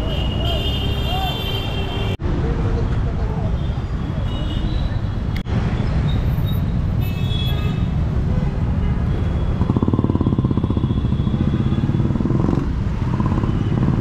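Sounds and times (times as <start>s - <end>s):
busy road traffic: 0.0s - 14.0s
nearby motorcycle engine: 9.6s - 14.0s.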